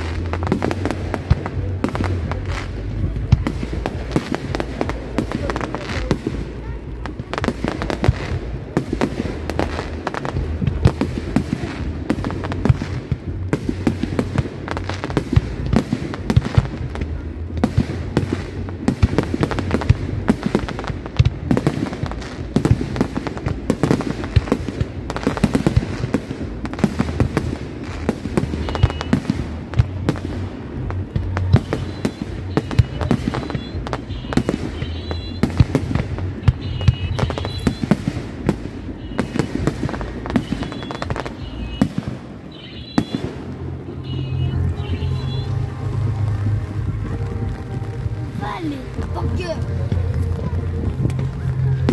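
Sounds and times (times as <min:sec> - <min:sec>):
fireworks bangs: 0:00.0 - 0:51.9
fireworks crackling: 0:00.0 - 0:51.9
low rumble: 0:43.2 - 0:51.9.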